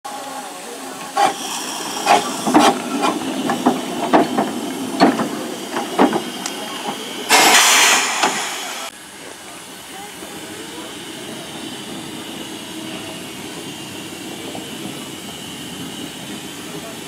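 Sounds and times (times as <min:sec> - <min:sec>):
steam hissing: 0:00.1 - 0:17.0
metal clanks and knocks: 0:03.4 - 0:06.3.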